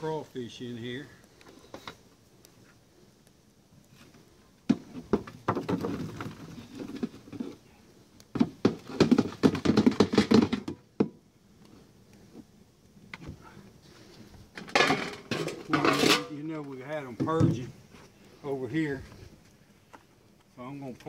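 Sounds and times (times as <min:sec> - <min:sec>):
food clattering into a cooler: 0:14.6 - 0:16.2.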